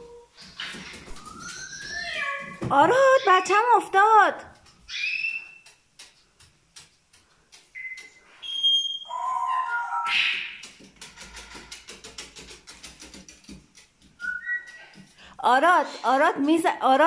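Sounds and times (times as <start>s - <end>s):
cockatoo whistles: 14.2s - 14.7s.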